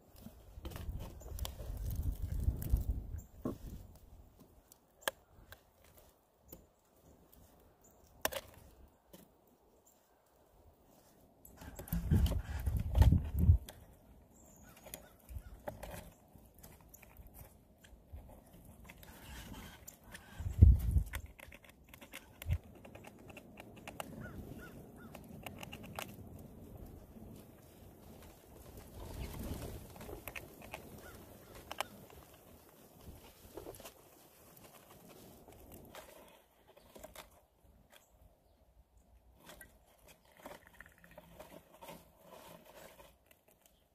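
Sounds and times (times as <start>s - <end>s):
squirrel gnawing on food packaging: 0.1s - 3.9s, 11.5s - 38.1s, 39.4s - 43.9s.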